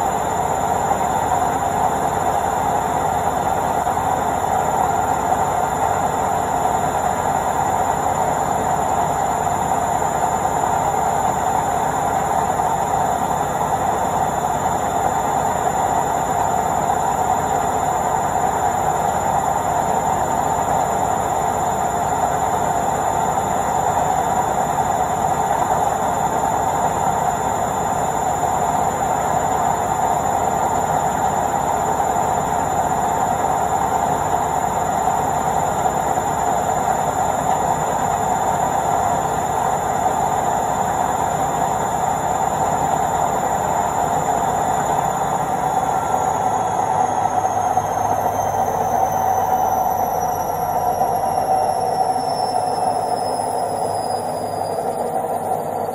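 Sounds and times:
washing machine spinning: 0:00.0 - 0:55.9
high whine: 0:29.0 - 0:55.9.

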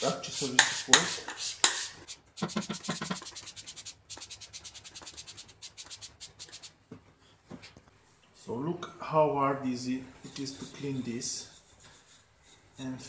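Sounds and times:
scrubbing metal bracket: 0:02.4 - 0:03.2.

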